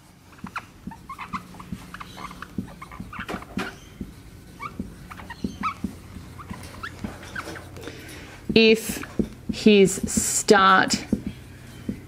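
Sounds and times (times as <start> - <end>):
marker squeaking on whiteboard: 0.0 - 7.8.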